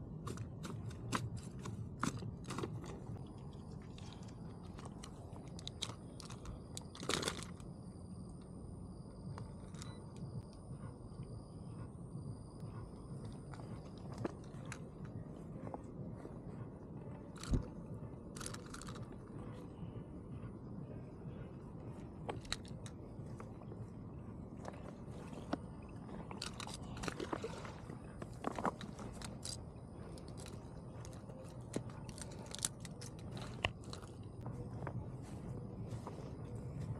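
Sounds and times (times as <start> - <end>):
low background rumble: 0.0 - 36.9
footsteps on grass and pebbles: 33.8 - 36.9.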